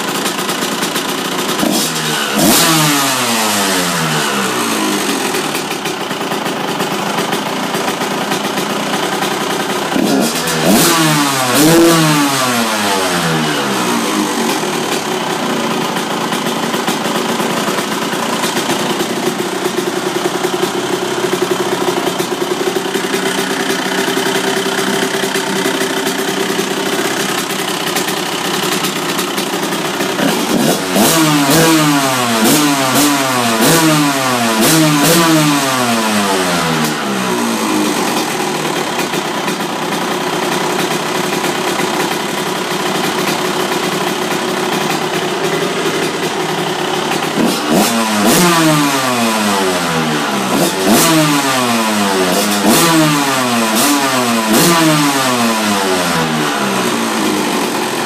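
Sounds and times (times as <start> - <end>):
two-stroke engine revving: 0.0 - 58.0.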